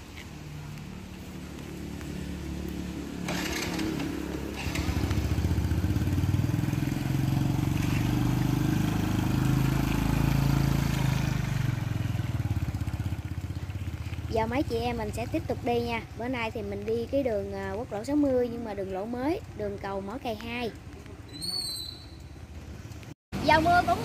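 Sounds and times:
motorbike engine: 2.2 - 15.9.

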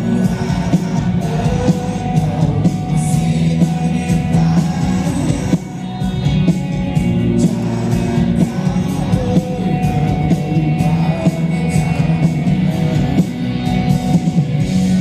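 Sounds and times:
man singing: 0.0 - 6.3, 7.0 - 13.8
drums keeping a steady beat: 0.0 - 15.0
electric guitar chords: 0.0 - 15.0.

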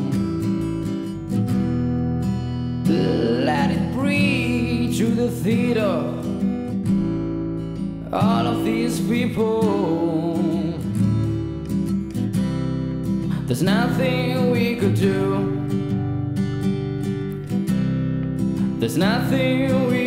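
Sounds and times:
acoustic guitar strumming: 0.0 - 20.0
man singing long notes: 2.9 - 6.2.

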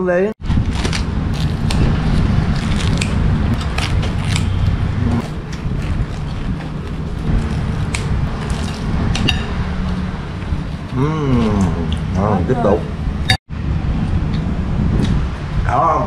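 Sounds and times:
low background rumble: 0.4 - 16.0
scissors crunching bread crust: 0.6 - 4.6.

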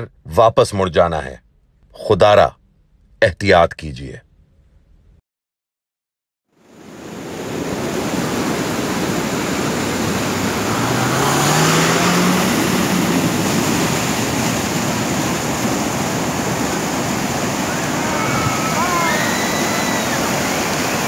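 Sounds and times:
floodwater rushing: 6.8 - 21.0
vehicle engine revving: 9.4 - 18.0.

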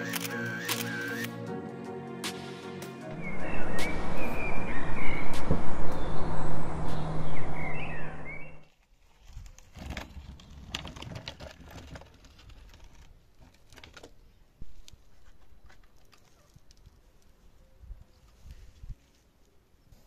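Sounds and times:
loud dense low hum: 2.1 - 8.6
high bird-like chirps: 3.1 - 8.6.

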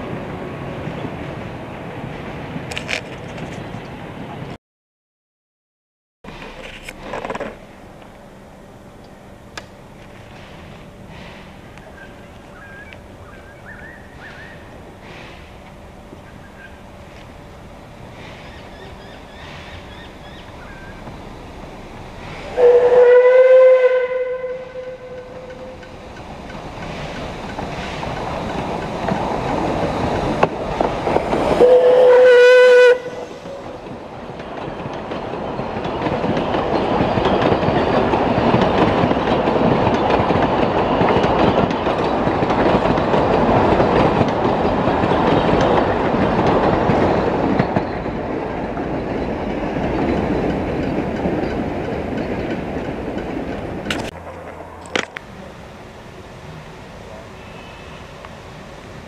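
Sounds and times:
wheels rumbling on rail: 0.0 - 4.6, 6.3 - 59.0
steam train whistle: 22.4 - 25.8, 31.5 - 33.6, 57.2 - 58.1.

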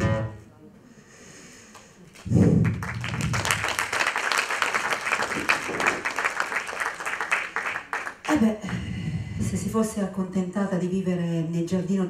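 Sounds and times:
audience applauding: 2.1 - 8.4.

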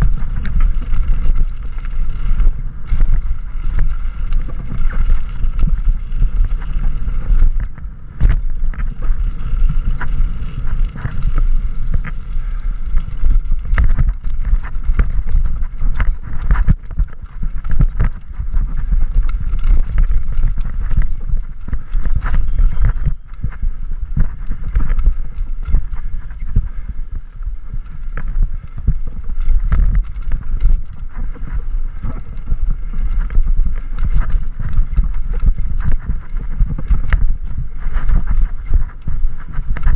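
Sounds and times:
bike clattering over rocks: 0.0 - 23.5
wind buffeting microphone: 0.0 - 39.9.

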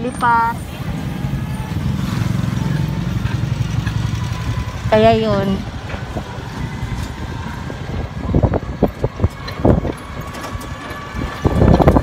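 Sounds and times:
vehicle engine running: 0.0 - 12.0.

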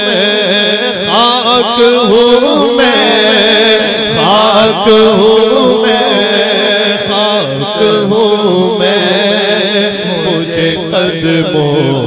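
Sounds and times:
person singing devotional melody: 0.0 - 12.0.

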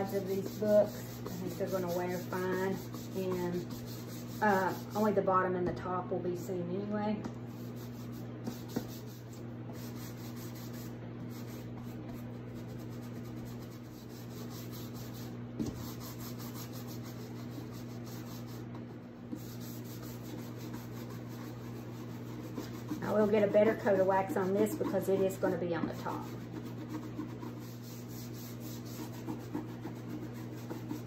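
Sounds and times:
wax brush scrubbing: 0.0 - 5.2, 7.5 - 31.0.

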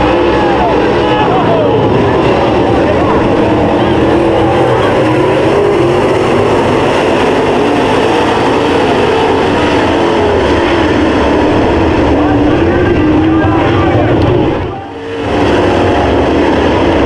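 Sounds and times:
race car engines roaring: 0.0 - 17.0.

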